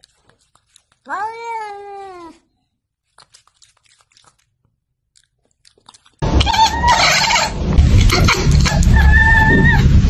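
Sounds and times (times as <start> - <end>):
cat meowing: 1.0 - 2.5, 6.3 - 7.5.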